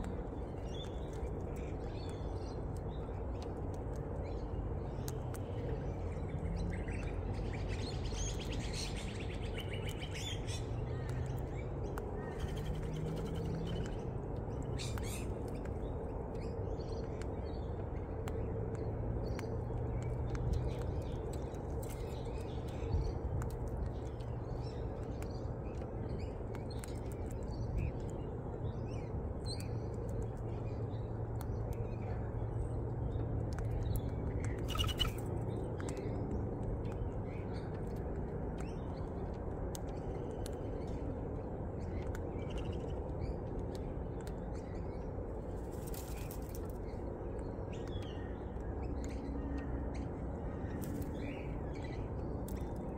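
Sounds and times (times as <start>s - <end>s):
birds chirping: 19.2s - 38.0s.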